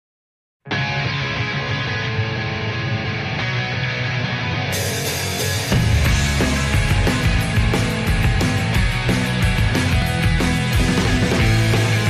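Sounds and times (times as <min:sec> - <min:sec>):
background music: 0:03.2 - 0:12.0.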